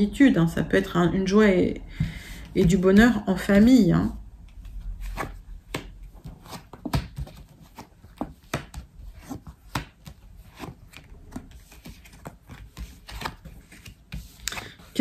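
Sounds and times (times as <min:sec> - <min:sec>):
cards being shuffled: 0:04.5 - 0:15.0.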